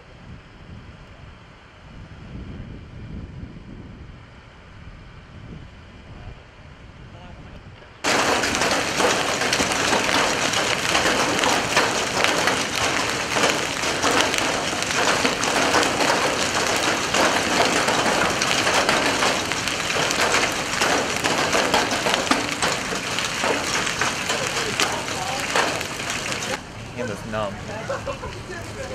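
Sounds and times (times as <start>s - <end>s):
hailstones clattering: 8.0s - 28.9s
heavy rain on pavement: 8.0s - 28.9s.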